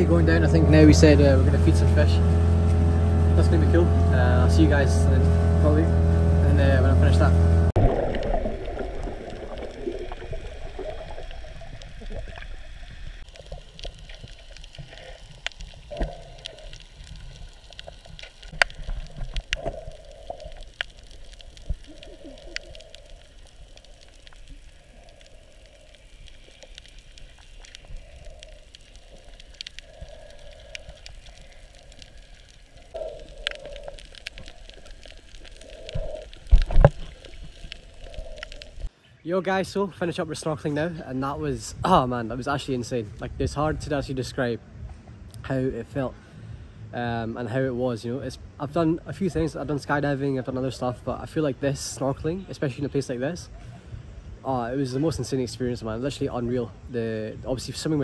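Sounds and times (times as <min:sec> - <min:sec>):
underwater wash of water: 0:00.0 - 0:38.9.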